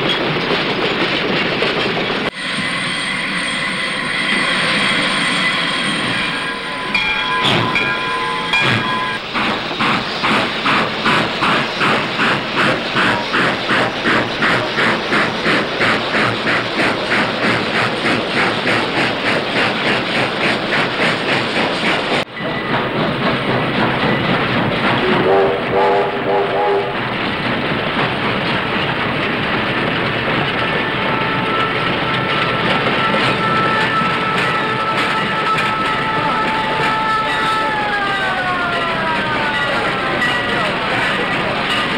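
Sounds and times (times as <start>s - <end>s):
steam locomotive chugging: 0.0s - 41.9s
short train tones: 2.3s - 17.8s, 25.0s - 27.1s, 30.5s - 41.9s
steam hiss: 6.8s - 22.2s.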